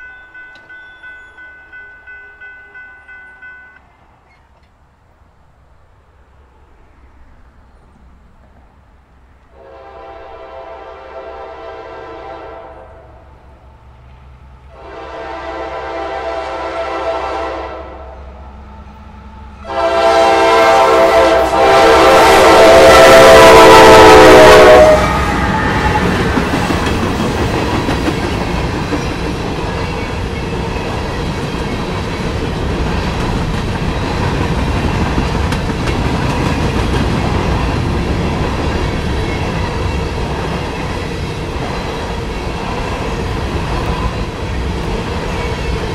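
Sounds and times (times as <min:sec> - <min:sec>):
freight train rumbling past: 0:00.0 - 0:45.9
locomotive air horn blasts: 0:09.6 - 0:13.1, 0:14.7 - 0:18.2, 0:19.6 - 0:26.2
wheels clicking over rail joints: 0:25.5 - 0:45.9.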